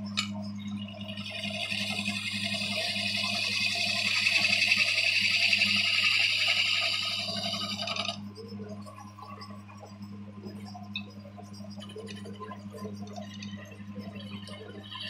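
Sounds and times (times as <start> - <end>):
motor humming: 0.0 - 15.0
woodworking cutter hissing through wood: 1.3 - 8.2.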